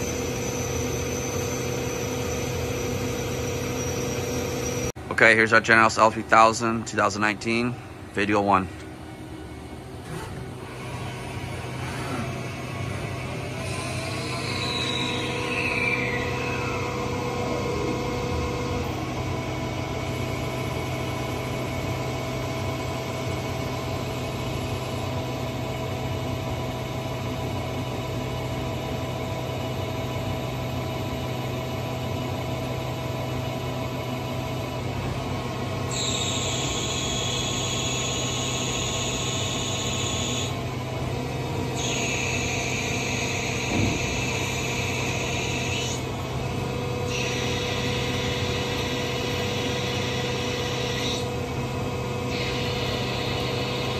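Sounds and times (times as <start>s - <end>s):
lathe spindle humming: 0.0s - 5.0s, 9.4s - 53.9s
high-pitched cutting squeal: 13.2s - 18.8s, 35.9s - 40.6s, 41.7s - 46.1s, 47.0s - 51.4s.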